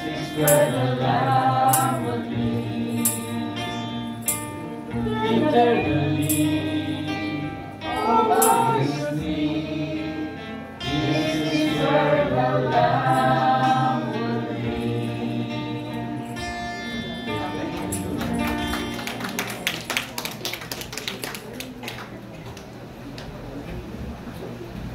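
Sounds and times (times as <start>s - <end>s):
tambourine strikes: 0.0s - 0.9s, 2.9s - 4.8s, 8.3s - 8.9s
choir singing a hymn: 0.0s - 4.1s, 4.8s - 18.1s
keyboard accompaniment: 0.0s - 19.8s.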